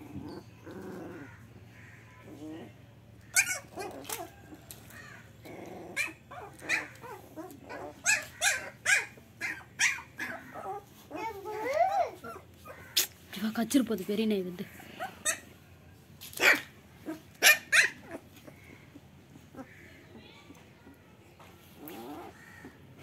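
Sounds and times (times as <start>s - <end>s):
puppy whining: 0.0s - 1.5s, 2.2s - 13.0s, 14.7s - 15.6s
puppies yapping and yelping: 0.0s - 13.0s, 14.8s - 15.6s, 16.3s - 19.9s.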